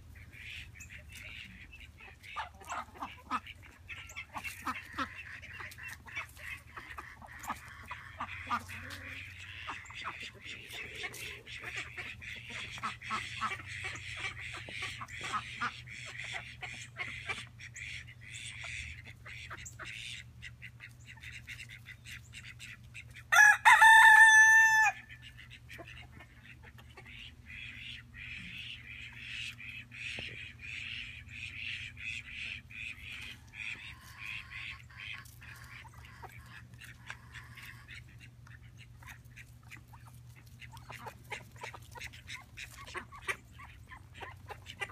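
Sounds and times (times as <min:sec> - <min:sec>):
rooster crowing: 0:23.3 - 0:25.1.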